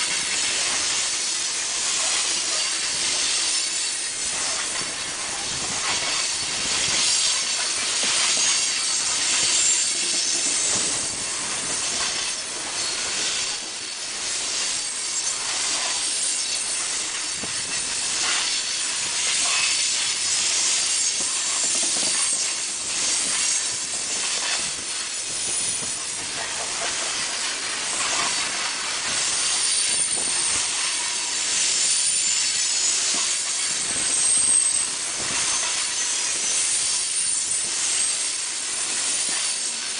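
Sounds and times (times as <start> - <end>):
train wheels rolling on rails: 0.0 - 39.9
wheels clacking on rails: 0.0 - 39.9
faint high wheel squeal: 0.5 - 28.6, 29.2 - 39.9.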